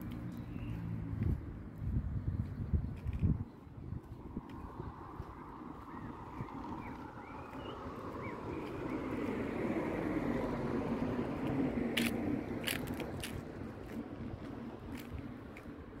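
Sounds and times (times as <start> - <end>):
car passing by: 4.1 - 15.3.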